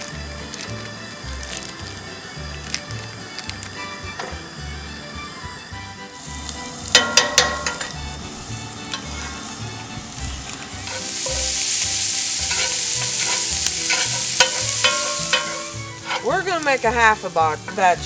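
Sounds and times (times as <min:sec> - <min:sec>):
sausage sizzling in skillet: 0:00.0 - 0:18.0
spatula scraping pan: 0:06.3 - 0:18.0.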